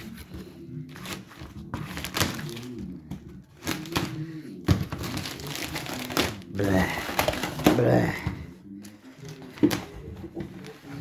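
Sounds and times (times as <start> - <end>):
plastic wrap rustling: 0.9 - 8.1.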